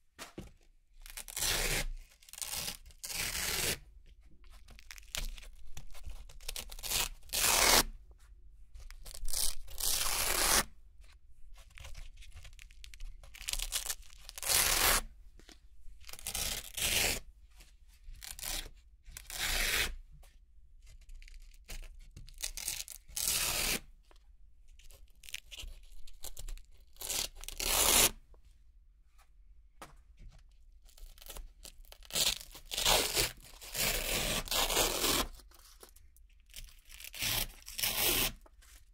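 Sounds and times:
velcro ripping tears: 1.2 - 3.8, 9.3 - 10.7, 13.4 - 15.0, 27.0 - 28.2, 32.0 - 35.4, 36.9 - 38.4.

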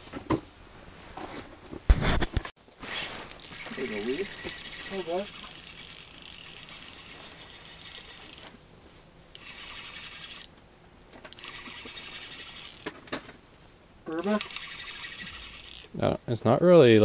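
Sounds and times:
fishing reel whirring and clicking: 3.3 - 8.6, 9.3 - 10.5, 11.3 - 12.9, 14.1 - 16.0.

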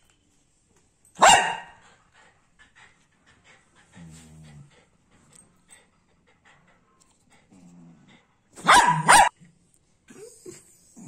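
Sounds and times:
dog barking: 1.2 - 1.8, 8.6 - 9.3.

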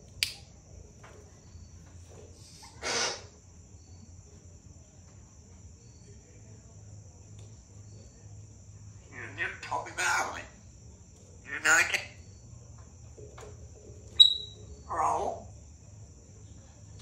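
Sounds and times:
faint low hum: 0.0 - 17.0
sharp click: 0.2 - 0.4.

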